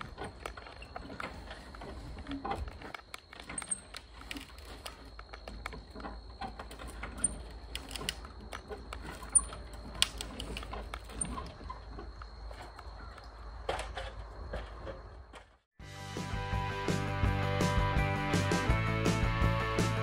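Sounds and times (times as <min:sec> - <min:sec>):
metal jacks and lumber clinking: 0:00.0 - 0:15.5.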